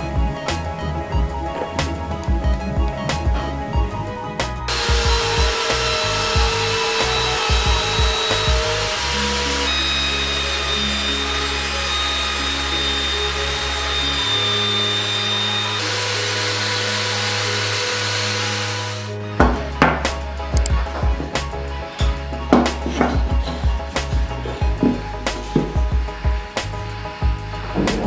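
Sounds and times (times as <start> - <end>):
belt sander sanding wood: 4.6 - 19.2, 22.5 - 28.0.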